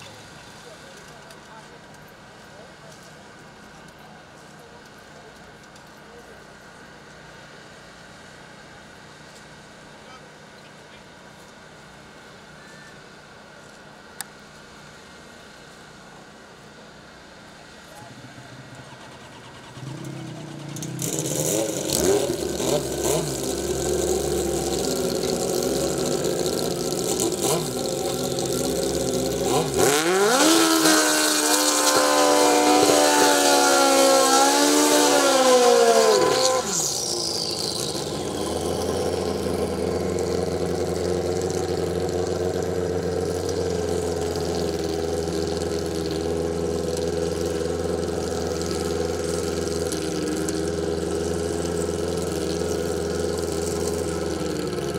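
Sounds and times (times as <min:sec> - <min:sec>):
motorcycle engines idling and blipping: 0:00.0 - 0:54.9
motorcycle burnout at high revs: 0:17.9 - 0:54.9.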